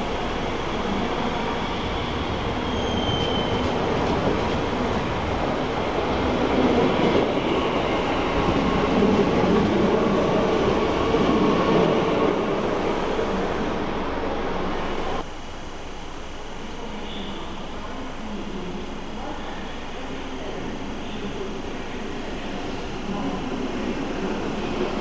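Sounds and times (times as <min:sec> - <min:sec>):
electric train passing: 0:00.0 - 0:25.0
high squeal: 0:01.6 - 0:03.8.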